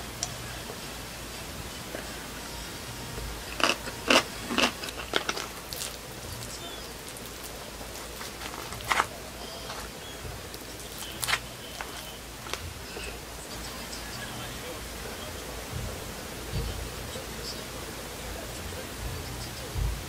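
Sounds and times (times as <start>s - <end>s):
crunchy chewing: 1.8s - 14.8s.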